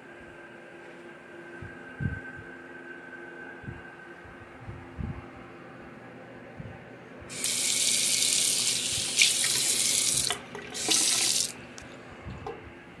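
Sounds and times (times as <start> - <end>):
faucet water splashing into sink: 7.3 - 11.5.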